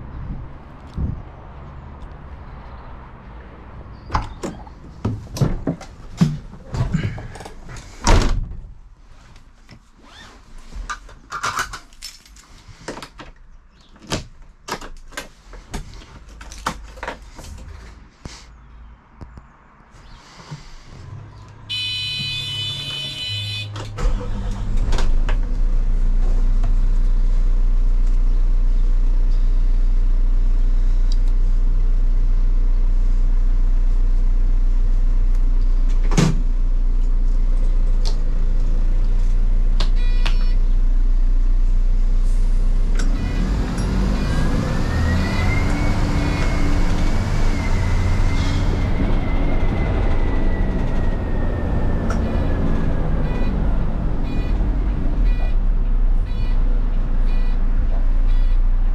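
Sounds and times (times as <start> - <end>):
lorry pulling away: 24.0 - 25.8
high beeping tone: 52.2 - 55.6, 56.3 - 57.6, 58.2 - 58.6.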